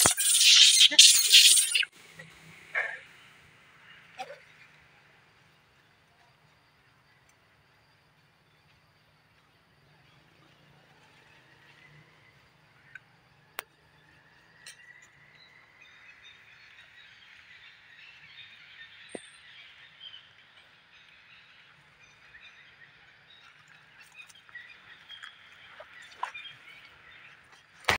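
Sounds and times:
high chirping chorus: 0:00.0 - 0:01.9.

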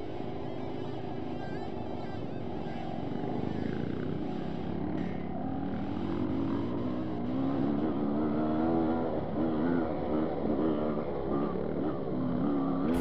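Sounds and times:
dirt bike engine revving: 0:12.3 - 0:13.0.

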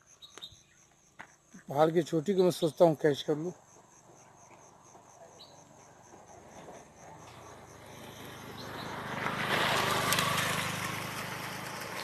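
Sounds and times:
insect chirping: 0:00.0 - 0:09.3
motor vehicle approaching: 0:04.6 - 0:12.0.

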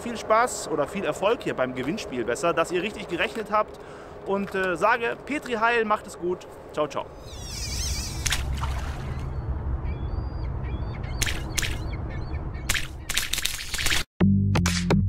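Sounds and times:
faint bird chirps: 0:07.2 - 0:08.3
short harsh calls: 0:07.2 - 0:08.4
low rumble: 0:07.8 - 0:12.7.

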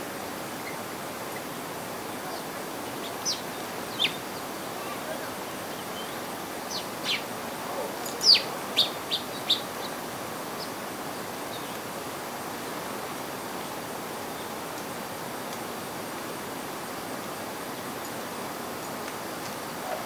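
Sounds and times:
steady hiss: 0:00.0 - 0:20.0
small songbirds chirping: 0:00.5 - 0:07.4, 0:08.0 - 0:11.9.

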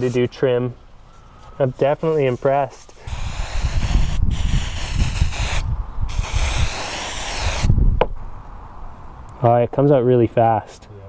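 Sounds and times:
aerosol can spraying: 0:03.0 - 0:07.7.

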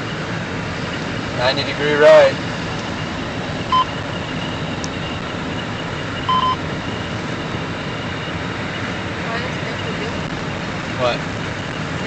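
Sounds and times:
car engine and tyre noise: 0:00.0 - 0:12.0
short electronic beep: 0:03.7 - 0:04.0, 0:06.2 - 0:06.6.

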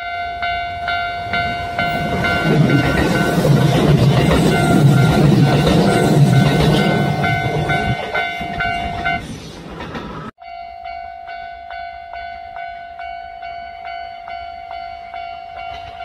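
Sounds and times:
level crossing bell ringing: 0:00.0 - 0:09.2
train passing rumble: 0:00.0 - 0:10.4.

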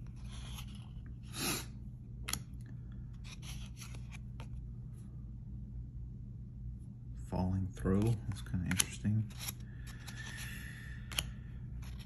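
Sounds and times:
cards swishing against each other: 0:03.1 - 0:04.6.

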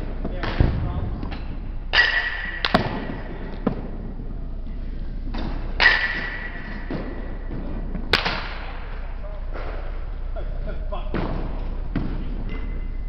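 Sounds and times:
baseball bat cracking ball: 0:00.4 - 0:03.9, 0:05.4 - 0:09.0.

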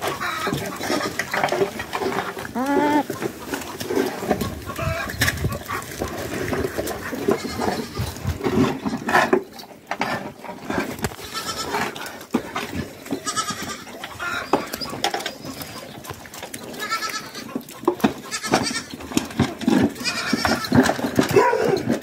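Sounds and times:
young goats bleating: 0:00.1 - 0:01.5, 0:02.4 - 0:03.2, 0:07.3 - 0:08.2, 0:11.2 - 0:11.9, 0:13.1 - 0:14.8, 0:16.7 - 0:19.0, 0:19.9 - 0:20.9.

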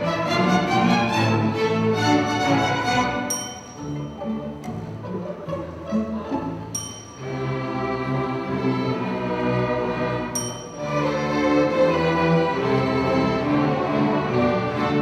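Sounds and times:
string orchestra playing: 0:00.0 - 0:15.0
bright bell ding: 0:03.3 - 0:04.8, 0:06.8 - 0:07.7, 0:10.4 - 0:11.2.

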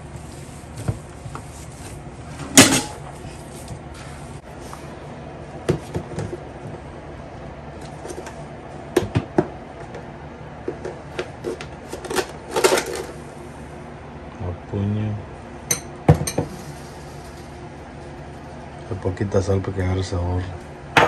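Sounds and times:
dough kneaded by hand: 0:00.0 - 0:05.0
low background hum: 0:00.0 - 0:21.0.

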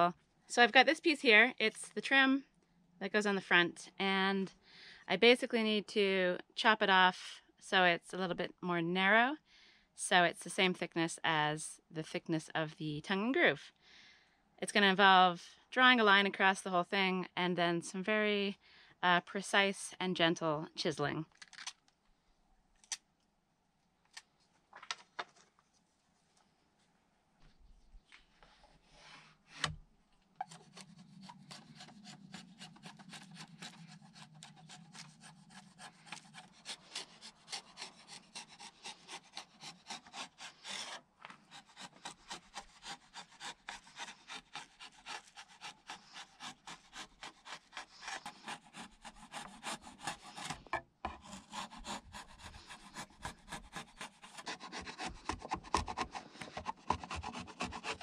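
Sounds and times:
chisel scraping wood: 0:30.4 - 0:58.0.

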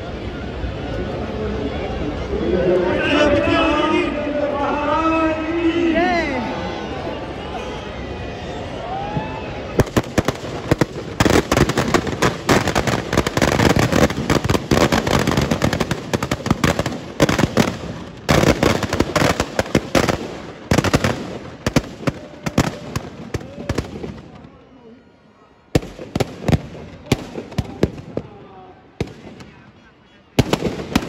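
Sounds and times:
firecrackers cracking and banging: 0:09.8 - 0:24.5, 0:25.8 - 0:28.4, 0:29.0 - 0:29.6, 0:30.4 - 0:31.0.

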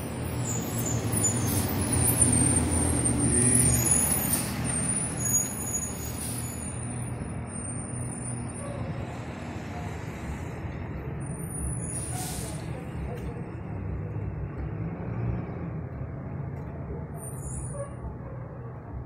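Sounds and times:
truck diesel engine passing: 0:08.8 - 0:17.2.

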